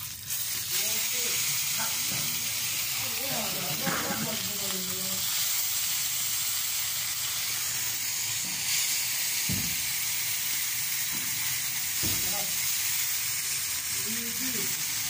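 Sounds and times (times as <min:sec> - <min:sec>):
fish sizzling in hot oil: 0:00.0 - 0:15.0
low dull thump: 0:09.5 - 0:09.8.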